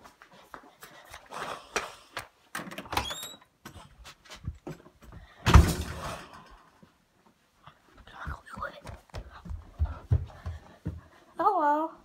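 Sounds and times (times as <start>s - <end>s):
footsteps: 0.0s - 2.5s, 3.6s - 5.5s, 6.4s - 11.4s
door squeaking: 2.7s - 3.5s
door shutting with thud: 5.4s - 6.1s.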